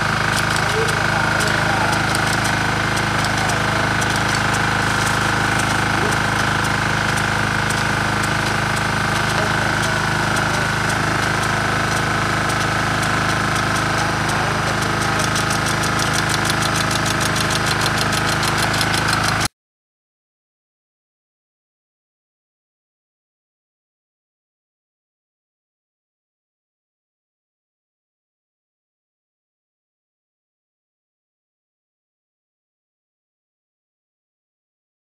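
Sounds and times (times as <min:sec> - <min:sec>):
diesel engine running: 0:00.0 - 0:19.5
sprinkler spray hissing: 0:00.0 - 0:19.5.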